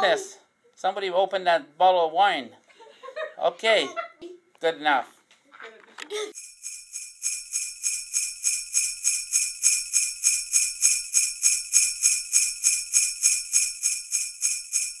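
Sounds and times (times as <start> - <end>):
sleigh bells shaken: 6.4 - 15.0.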